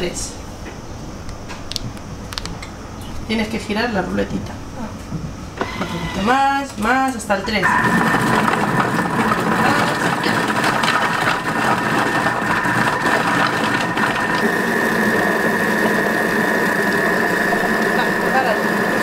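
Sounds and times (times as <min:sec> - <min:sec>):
food processor whining: 0:05.6 - 0:06.4, 0:07.5 - 0:19.0.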